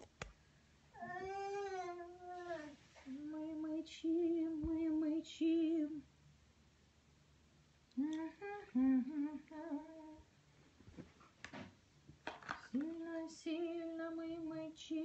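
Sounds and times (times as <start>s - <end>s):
person humming: 1.0s - 4.5s, 7.9s - 10.2s.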